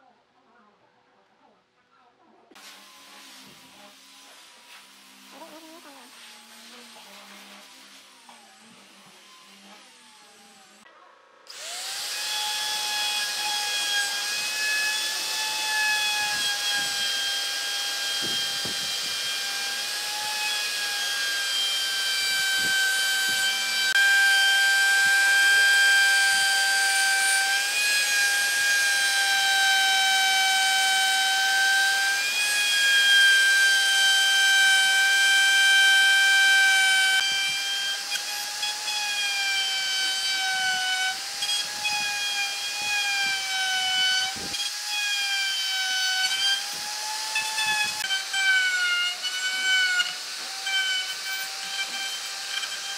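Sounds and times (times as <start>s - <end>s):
router high whine: 11.5s - 52.9s.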